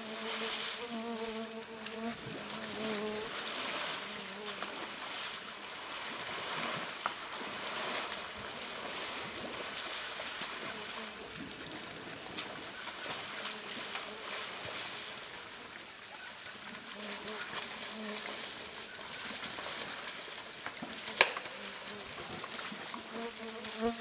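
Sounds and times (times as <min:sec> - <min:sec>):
high-pitched insect drone: 0:00.0 - 0:24.0.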